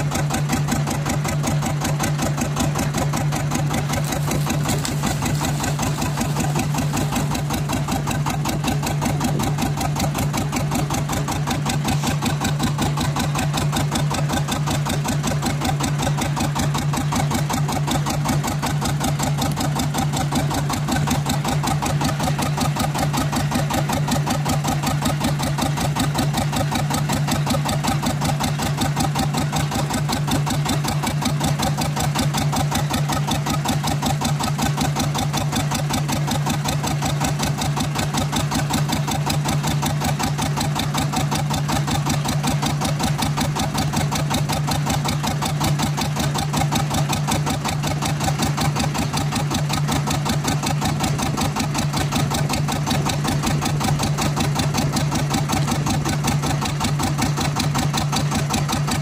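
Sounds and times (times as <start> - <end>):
boat engine chugging: 0.0 - 59.0.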